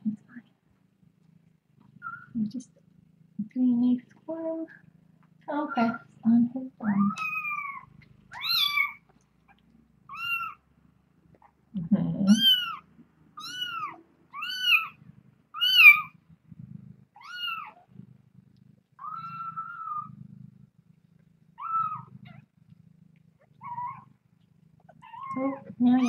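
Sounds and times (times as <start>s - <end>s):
soft low rumble: 0.0s - 26.0s
kitten meowing: 6.9s - 9.0s, 10.1s - 10.6s, 12.3s - 12.8s, 13.4s - 16.1s, 17.2s - 17.8s, 19.0s - 20.1s, 21.6s - 22.4s, 23.6s - 24.1s, 25.0s - 26.0s.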